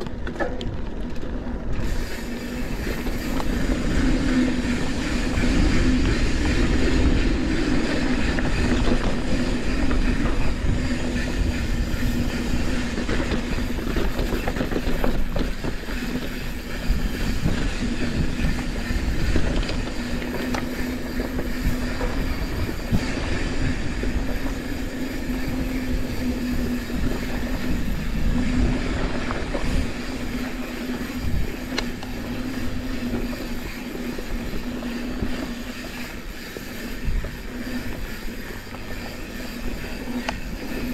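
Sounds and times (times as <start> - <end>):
bike rattles and clicks: 0.0 - 40.9.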